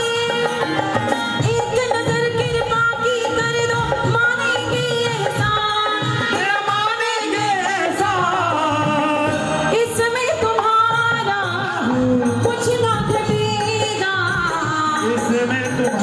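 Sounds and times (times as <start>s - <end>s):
instrumental accompaniment: 0.0s - 16.0s
devotional singing: 4.4s - 16.0s.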